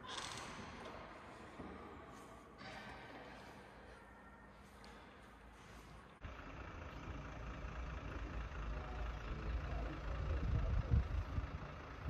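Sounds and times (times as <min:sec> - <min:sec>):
low rumble: 0:07.4 - 0:12.0
wind buffeting microphone: 0:10.2 - 0:11.7.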